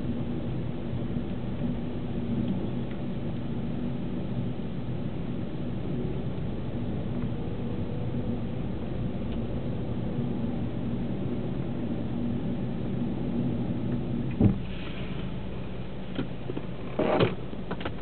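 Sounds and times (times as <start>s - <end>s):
sharp thump: 14.4s - 14.8s.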